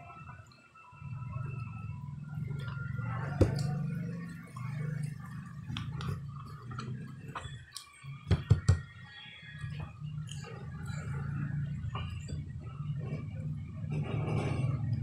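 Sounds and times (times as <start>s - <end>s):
person chewing: 4.4s - 8.1s.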